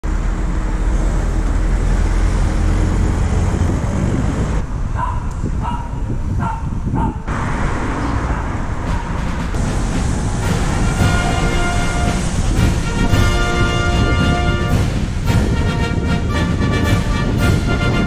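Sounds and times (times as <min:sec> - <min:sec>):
traffic noise: 0:00.0 - 0:18.0
wind rumble on microphone: 0:00.1 - 0:18.0
dog barking: 0:05.0 - 0:07.3.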